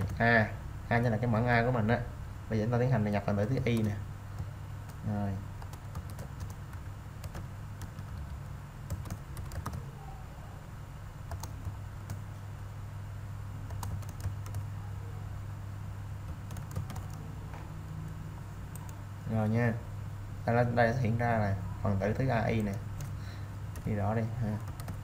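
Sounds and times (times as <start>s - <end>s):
keyboard typing clicks: 0.0s - 0.2s, 5.6s - 9.8s, 11.3s - 12.2s, 13.7s - 14.7s, 16.2s - 17.3s, 18.0s - 19.0s, 22.5s - 25.0s
low steady hum: 0.0s - 25.0s.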